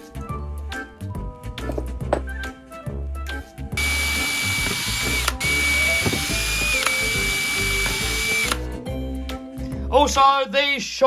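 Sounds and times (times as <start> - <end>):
background music: 0.0 - 11.0
power drill whining: 3.8 - 8.6.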